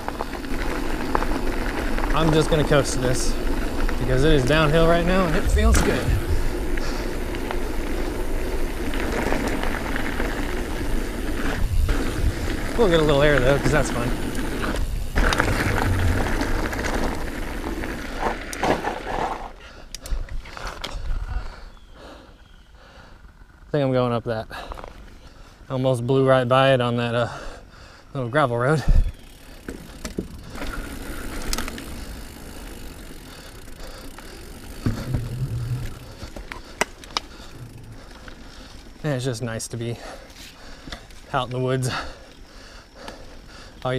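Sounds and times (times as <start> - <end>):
bike tyres on gravel: 0.0 - 43.9
low hum: 14.1 - 17.9
bike landing knock: 34.8 - 35.5.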